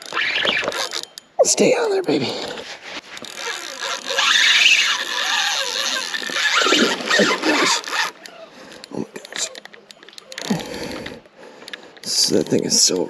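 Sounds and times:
fishing reel drag squealing: 0:00.0 - 0:01.3, 0:02.3 - 0:11.2.

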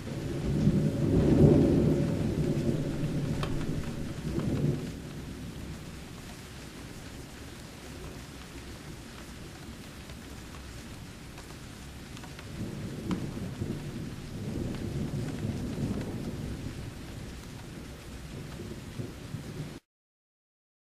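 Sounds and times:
low rolling thunder: 0:00.0 - 0:06.0, 0:12.4 - 0:19.8
steady rain: 0:00.0 - 0:19.8.

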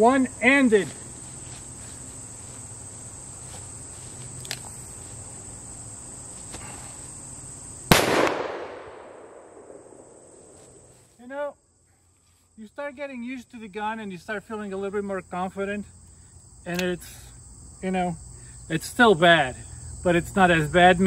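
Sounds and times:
high trill of insects: 0:00.0 - 0:21.0
revolver gunshot: 0:07.9 - 0:10.5.

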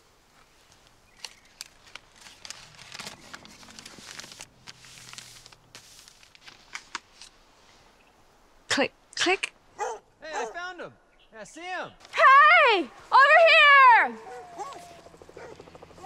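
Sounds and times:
footsteps crunching through dry leaves: 0:00.5 - 0:06.8.

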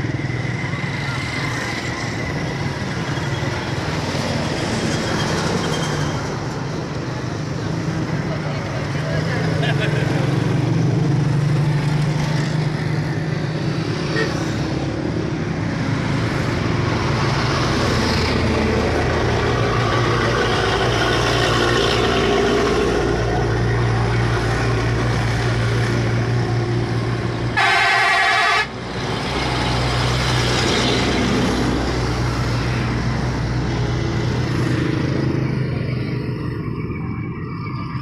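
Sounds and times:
vehicle horn: 0:27.6 - 0:28.8.

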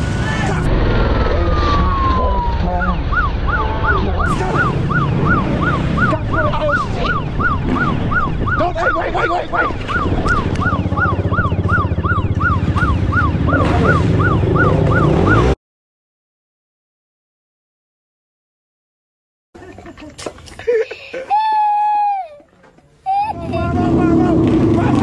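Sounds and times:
engines idling: 0:00.0 - 0:15.6, 0:23.3 - 0:25.0
police siren yelping: 0:00.6 - 0:15.6.

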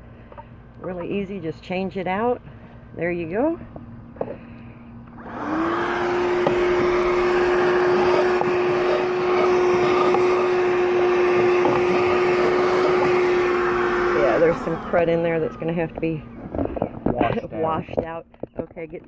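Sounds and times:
suction air rushing through hose: 0:05.2 - 0:15.8
handheld vacuum motor whining: 0:05.2 - 0:17.4.

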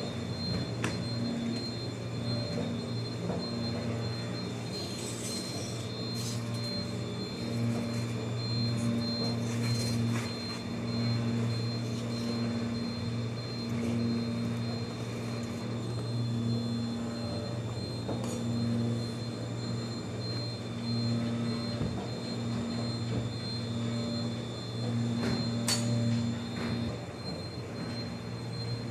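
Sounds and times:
low machinery hum: 0:00.0 - 0:28.9
thin high whine: 0:00.8 - 0:27.0.

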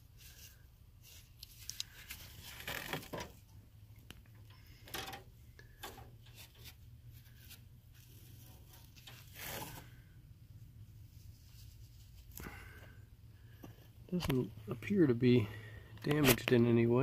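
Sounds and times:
gloved hands rustling: 0:00.0 - 0:03.5
low steady hum: 0:00.0 - 0:17.0.

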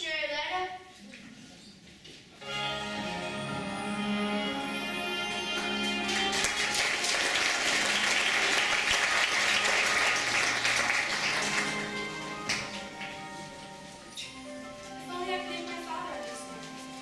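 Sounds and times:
soft music: 0:02.4 - 0:17.0
audience applauding: 0:05.2 - 0:13.4.

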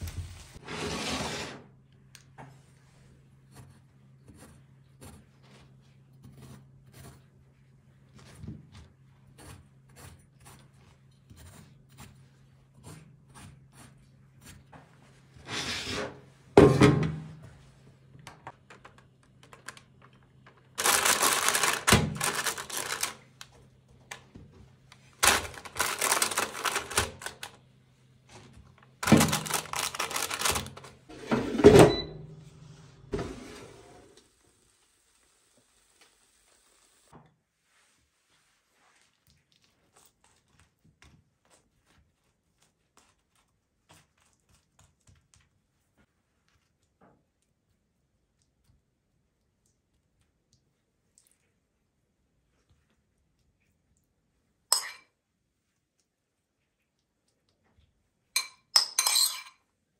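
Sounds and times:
parchment paper crinkling: 0:18.5 - 0:27.6, 0:28.3 - 0:31.1.

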